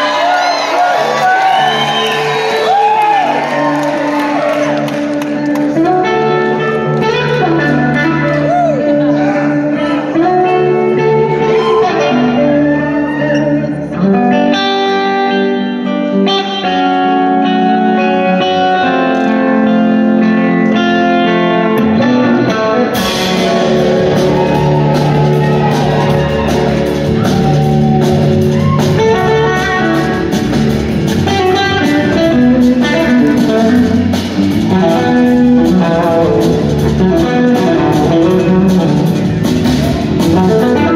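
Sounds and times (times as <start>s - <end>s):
bass guitar: 0.0s - 40.9s
electric guitar lead with sliding notes: 0.0s - 40.9s
drums and cymbals: 23.0s - 40.9s.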